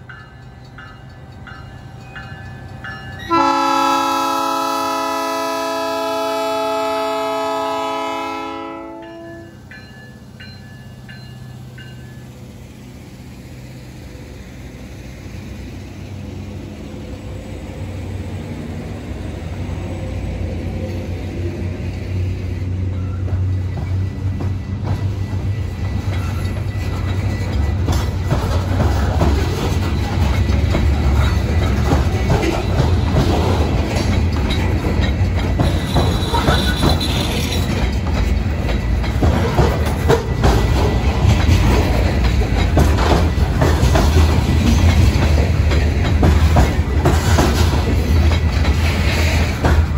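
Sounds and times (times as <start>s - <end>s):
locomotive horn chord: 3.3s - 9.6s
wheels clicking over rail joints: 22.8s - 49.9s.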